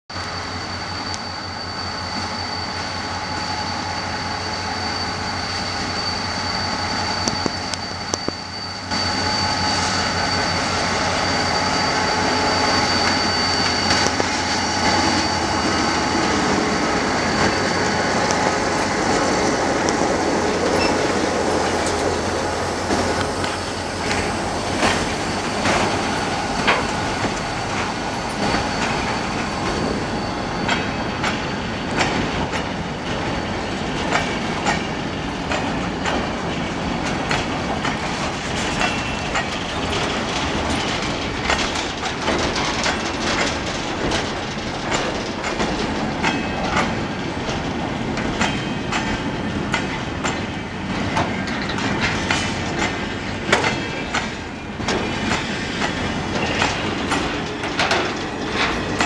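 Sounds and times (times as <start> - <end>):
thin high whine: 0.1 - 31.8
locomotive engine pulsing: 0.2 - 59.0
wagon wheels clicking over rail joints: 37.0 - 59.0.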